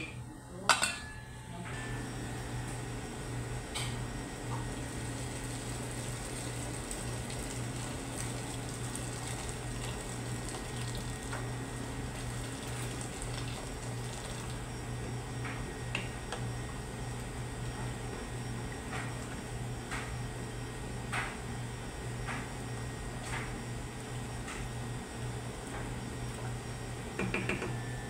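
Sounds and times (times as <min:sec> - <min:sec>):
steady low hum: 0:00.0 - 0:28.0
water pouring into pot: 0:05.3 - 0:11.3, 0:12.0 - 0:14.6.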